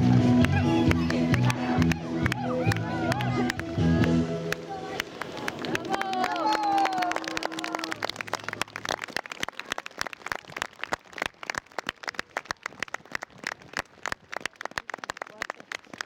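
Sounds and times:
audience applause: 4.8 - 16.0.

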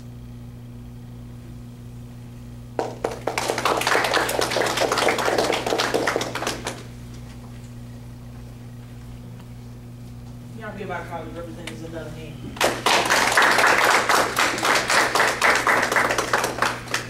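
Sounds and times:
steady low hum: 0.0 - 17.0
audience applauding: 2.8 - 6.9, 12.6 - 17.0.

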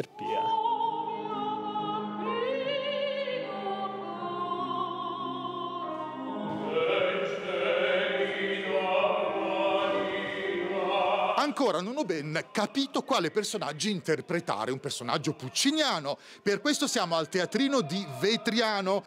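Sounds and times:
soprano opera singing: 0.0 - 19.0
keyboard accompaniment: 0.1 - 13.6
male opera singer: 6.6 - 19.0.

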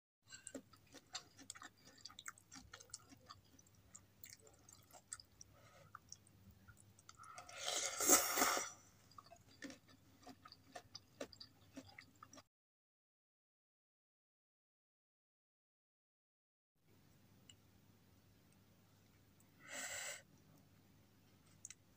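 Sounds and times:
wet chewing: 0.3 - 12.5
noodle slurp: 7.4 - 8.9
faint low hum: 16.9 - 21.9.

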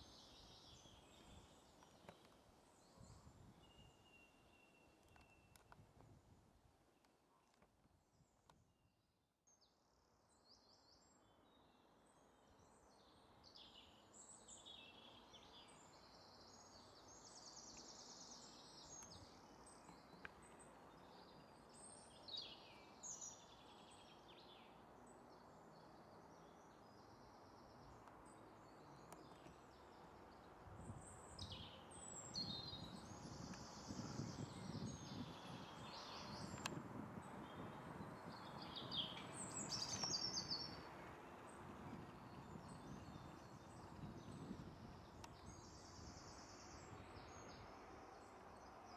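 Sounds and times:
steady outdoor hiss: 0.0 - 8.4, 9.7 - 48.9
birds singing faintly: 0.0 - 48.9
wind rumble on microphone: 2.8 - 4.2, 5.1 - 6.7, 30.4 - 48.9.

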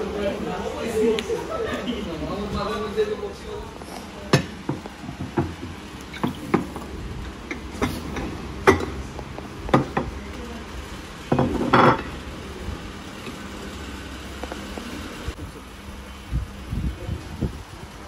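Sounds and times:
plates and cutlery clattering: 11.3 - 12.1.

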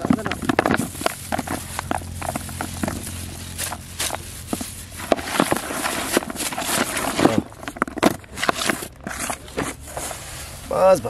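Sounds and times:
hands mixing soil and rice: 0.0 - 11.0
plastic bag crinkling: 0.0 - 11.0.

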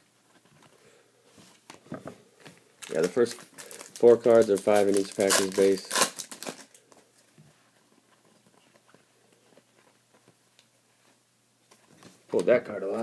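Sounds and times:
trading cards rustling: 2.4 - 7.1.

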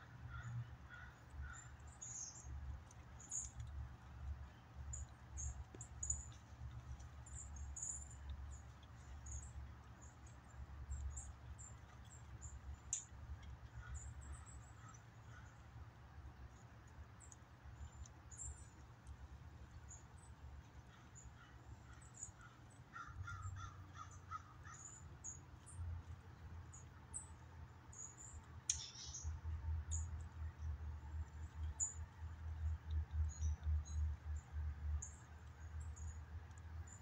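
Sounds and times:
birds chirping: 0.0 - 37.0
harsh lower bird calls: 20.9 - 25.4.

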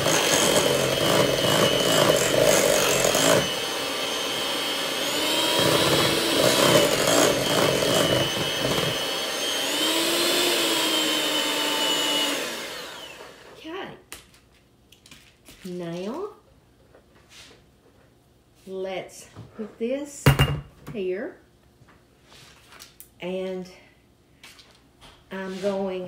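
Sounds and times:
electric hand mixer whipping: 0.0 - 13.6.

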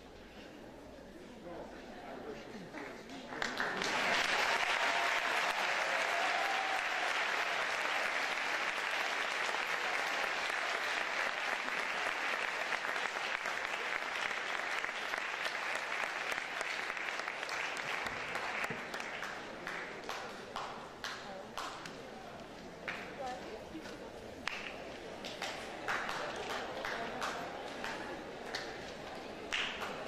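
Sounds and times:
audience applauding: 3.1 - 20.7, 24.5 - 30.0.

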